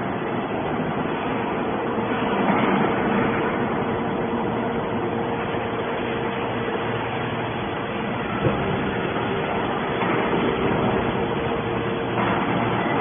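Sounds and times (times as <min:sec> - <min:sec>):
constant hum: 0:00.0 - 0:13.0
factory machinery running: 0:00.0 - 0:13.0.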